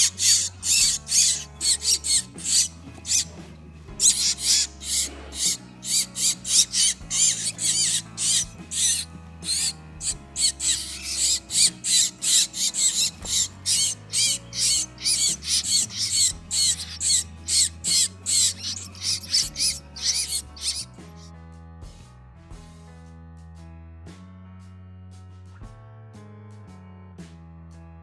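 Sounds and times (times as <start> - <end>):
nestling birds chirping: 0.0 - 21.3
background music with bass: 0.0 - 28.0.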